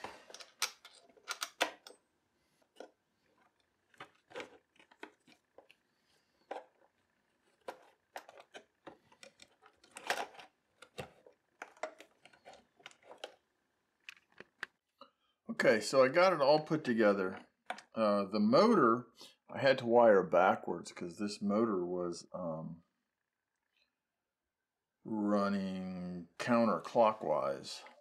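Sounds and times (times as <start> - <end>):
parts clicking and knocking: 0.0 - 14.8.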